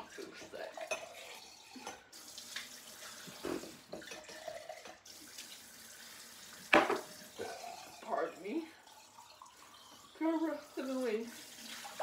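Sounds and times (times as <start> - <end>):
tap running into sink: 6.6 - 7.2.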